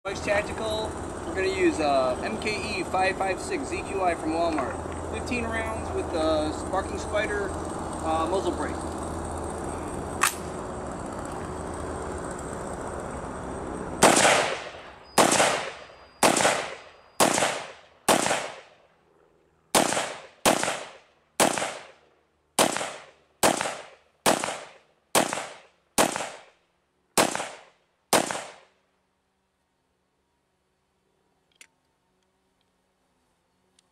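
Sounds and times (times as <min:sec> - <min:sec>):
rifle shots with echoing tail: 0:14.0 - 0:18.8, 0:19.7 - 0:22.0, 0:22.6 - 0:26.5, 0:27.2 - 0:28.7.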